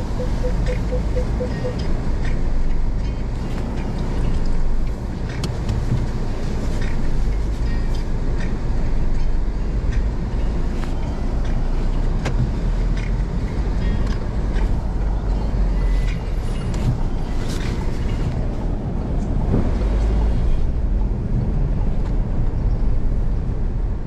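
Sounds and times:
short electronic beeps: 0.0s - 1.9s
car engine and tyre rumble: 0.0s - 24.0s.

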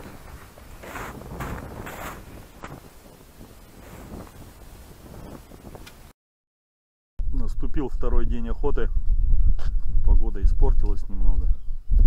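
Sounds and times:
footsteps crunching in snow: 0.0s - 5.8s
wind rumbling on microphone: 0.0s - 6.1s, 7.2s - 12.0s.

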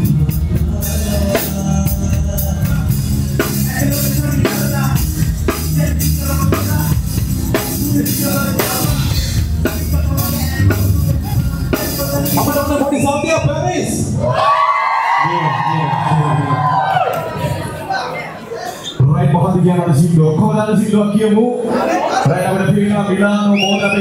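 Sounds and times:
hip-hop beat with heavy bass: 0.0s - 13.0s.

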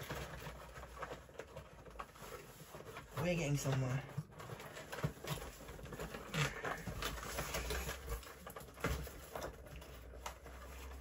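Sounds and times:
toy packaging being opened: 0.0s - 11.0s.

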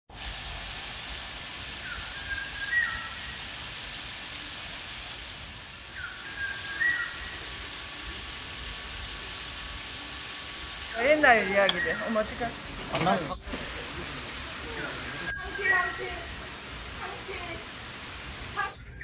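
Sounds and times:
waterfall splashing on rock: 0.1s - 18.8s
bird whistling: 1.8s - 3.3s, 5.9s - 7.4s, 11.4s - 12.4s, 14.7s - 16.3s.

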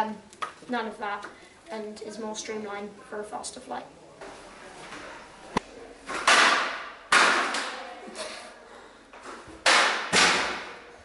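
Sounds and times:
sharp knocks echoing: 6.2s - 7.8s, 9.6s - 10.8s.

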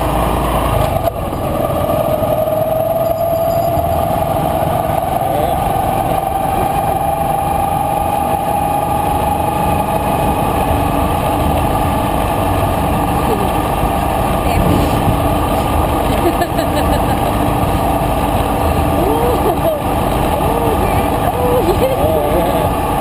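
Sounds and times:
motorcycle engine whine: 0.0s - 23.0s
wind on microphone: 5.8s - 16.3s.

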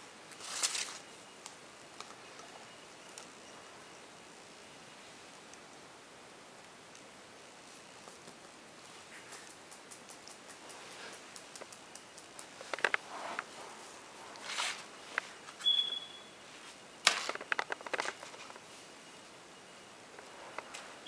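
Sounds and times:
brief high squeak: 15.6s - 16.4s.

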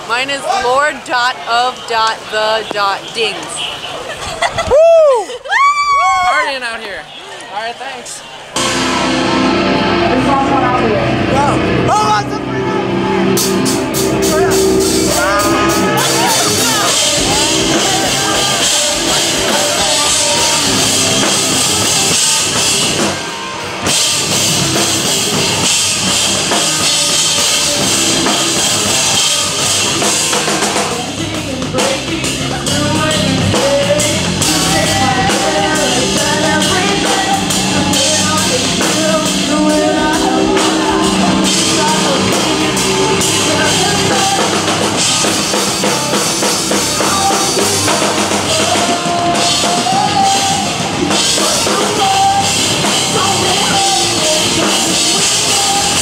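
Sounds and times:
rock music: 0.0s - 3.6s, 8.4s - 56.0s
person singing: 12.8s - 23.3s, 23.9s - 56.0s.

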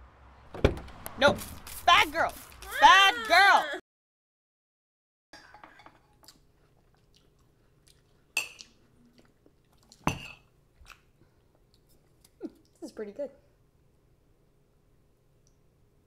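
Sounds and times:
louder knocks: 0.5s - 1.1s
chewing: 6.1s - 10.1s, 10.8s - 12.8s.

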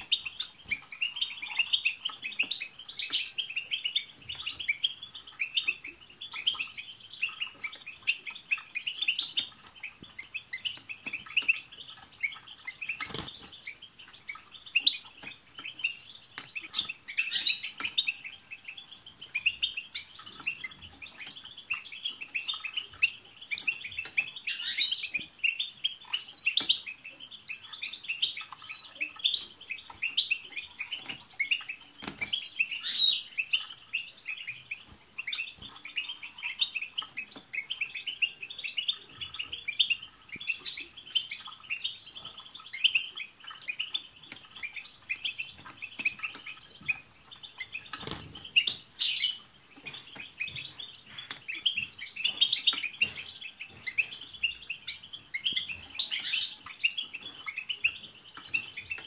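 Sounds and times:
finches twittering song: 0.0s - 59.0s.

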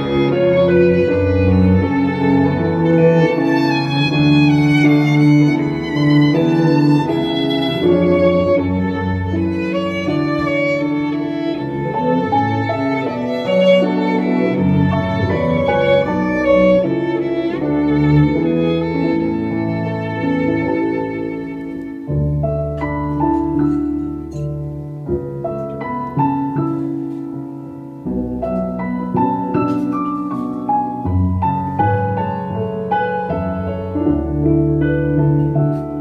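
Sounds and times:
bowed double bass: 0.0s - 36.0s
violin melody: 0.0s - 36.0s.

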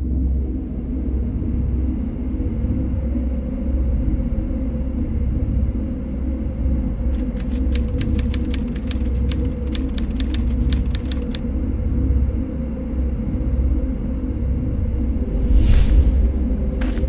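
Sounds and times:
sharp clicks: 7.2s - 11.4s
low rumble: 14.4s - 17.0s.

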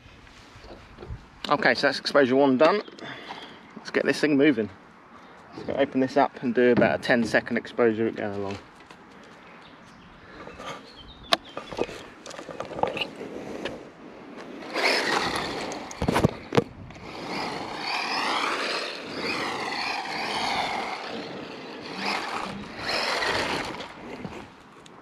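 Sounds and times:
rc car motor whine: 14.6s - 24.5s.

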